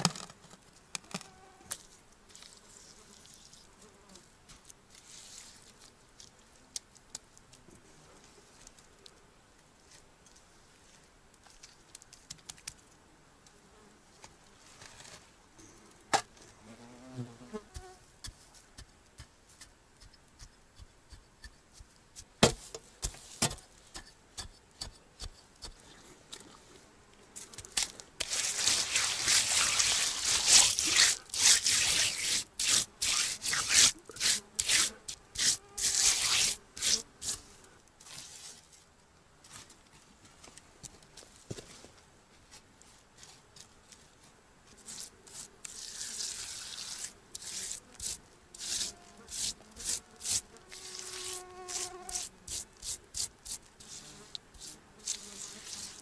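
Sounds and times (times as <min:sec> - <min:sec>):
hand rubbing wet mud: 0:01.7 - 0:07.6, 0:27.4 - 0:38.9, 0:42.8 - 0:56.0
fly buzzing: 0:28.2 - 0:37.3, 0:47.4 - 0:53.0, 0:53.8 - 0:56.0.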